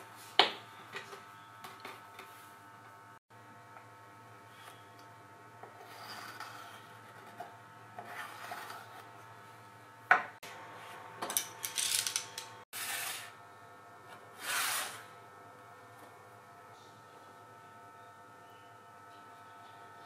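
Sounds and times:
scraping and rasping on plastic: 5.8s - 9.1s.

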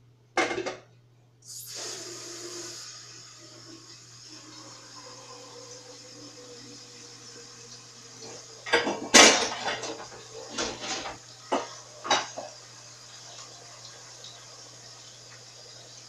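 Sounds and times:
dishes and pots clattering: 0.4s - 0.9s, 8.2s - 12.6s.

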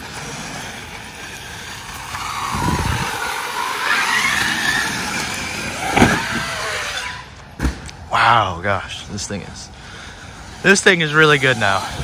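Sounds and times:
toy truck motor whining: 0.0s - 7.4s.

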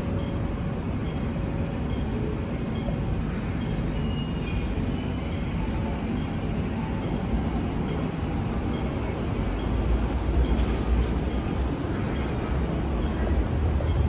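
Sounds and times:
train rumbling through station: 0.0s - 14.0s.

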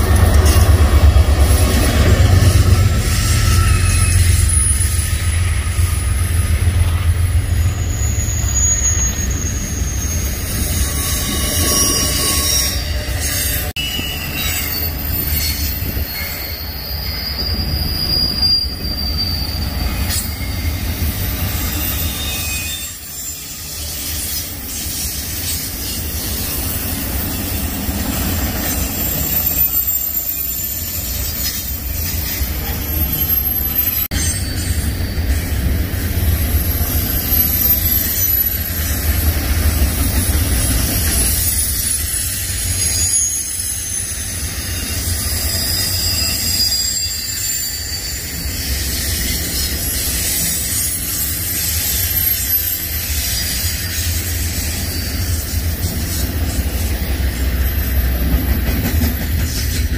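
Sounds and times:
freight train wheels rumbling: 0.0s - 59.9s
high wheel squeals: 0.0s - 59.9s.

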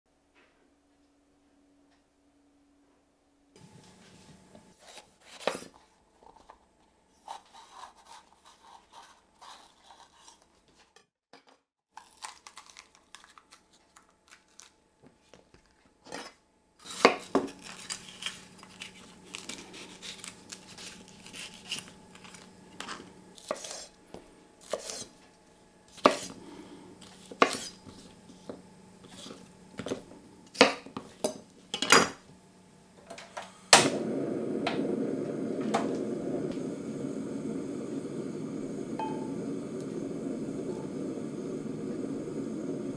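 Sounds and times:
knife slicing pepper: 7.2s - 10.5s, 16.8s - 23.9s, 24.6s - 25.1s, 25.9s - 26.4s, 27.0s - 28.1s.

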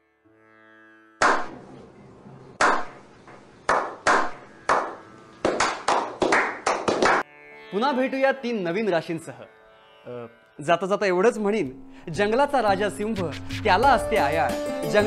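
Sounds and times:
group clapping: 1.2s - 1.5s, 2.6s - 2.9s, 3.7s - 7.2s.

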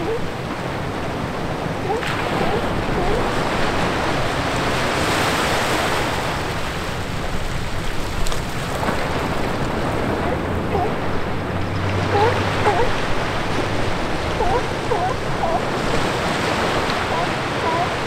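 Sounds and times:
small waves breaking on beach: 0.0s - 18.0s.

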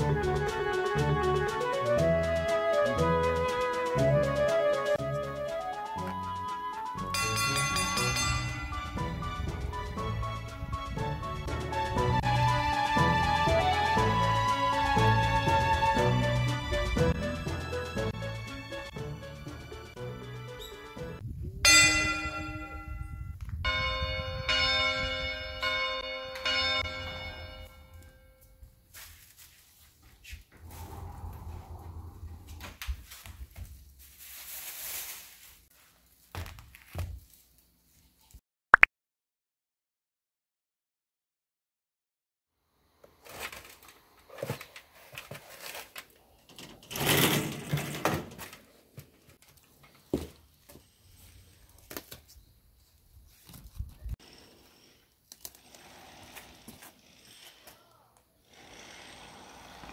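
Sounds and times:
church bells ringing: 7.1s - 9.4s, 21.7s - 28.4s.

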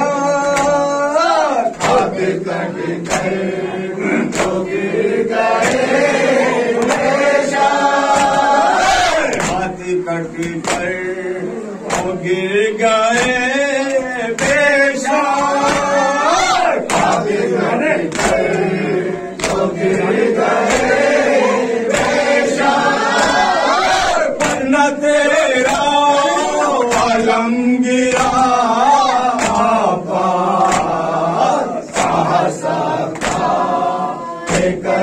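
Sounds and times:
men singing together: 0.0s - 35.0s
chest-beating slaps: 1.7s - 2.2s, 3.0s - 3.5s, 4.2s - 4.7s, 11.9s - 12.2s, 19.3s - 21.1s, 24.4s - 24.7s, 29.3s - 29.8s, 30.6s - 31.1s, 31.8s - 32.4s, 33.1s - 33.6s.

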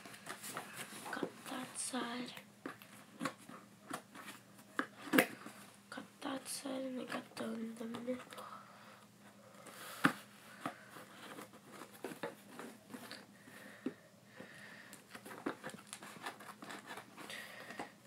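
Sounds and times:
scissors cutting cardboard: 15.2s - 17.8s.

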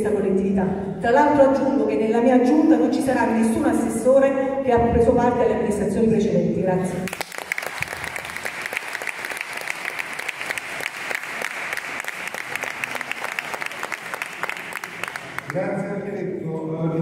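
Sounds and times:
audience applauding: 7.1s - 15.6s.

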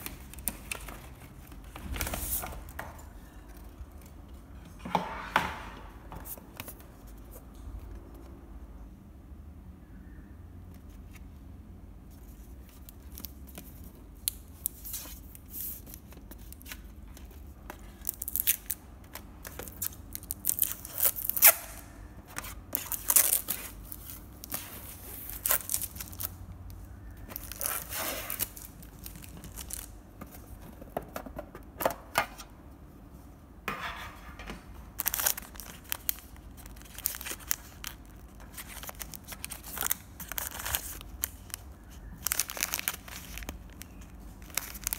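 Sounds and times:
plastic wrapping tearing and crinkling: 12.4s - 26.4s, 27.2s - 30.0s, 35.0s - 44.9s
plastic bags crinkling: 22.7s - 26.4s, 27.2s - 30.0s, 35.0s - 44.9s.

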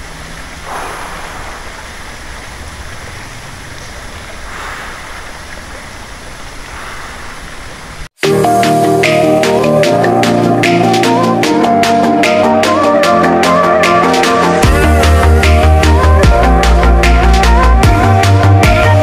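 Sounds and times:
flowing water rushing: 0.0s - 12.6s.

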